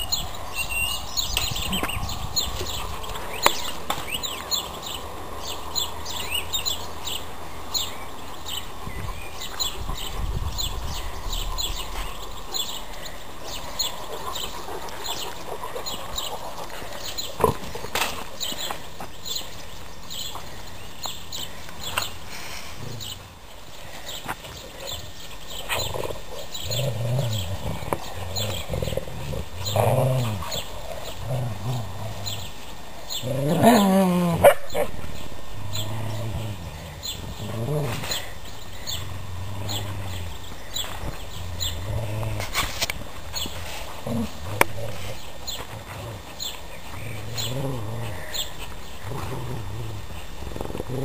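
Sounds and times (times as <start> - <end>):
dogs growling: 9.1 - 18.8, 21.4 - 51.0.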